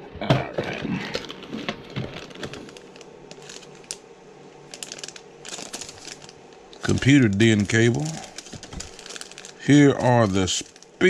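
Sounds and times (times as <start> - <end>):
plastic bags crinkling: 0.9 - 11.0.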